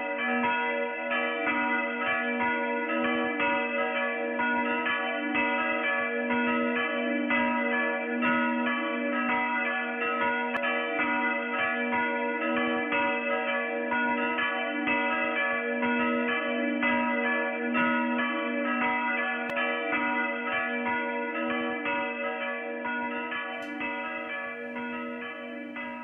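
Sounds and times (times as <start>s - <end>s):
church bells ringing: 0.0s - 26.0s.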